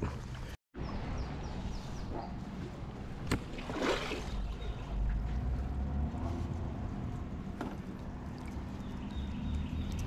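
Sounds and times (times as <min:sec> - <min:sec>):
water splashing and dripping: 0:03.0 - 0:05.6, 0:07.6 - 0:10.0.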